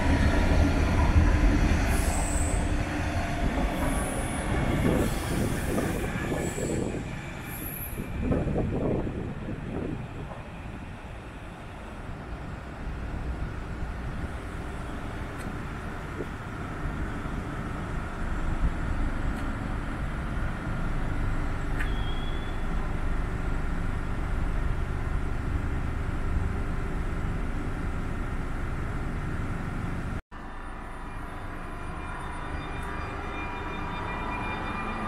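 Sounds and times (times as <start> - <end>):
train rolling rail rumble: 0.0 - 35.0
brief high squeak: 21.8 - 22.7.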